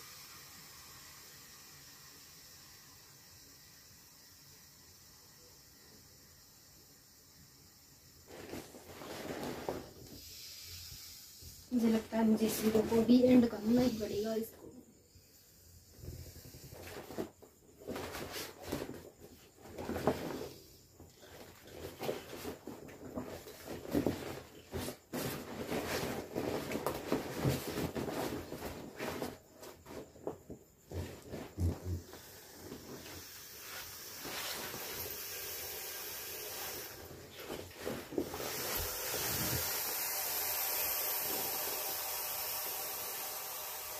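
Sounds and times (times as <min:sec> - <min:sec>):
air hissing out: 0:00.0 - 0:29.5, 0:30.9 - 0:43.9
plastic crinkling and rubbing: 0:08.3 - 0:10.2, 0:16.7 - 0:35.0, 0:37.0 - 0:39.6.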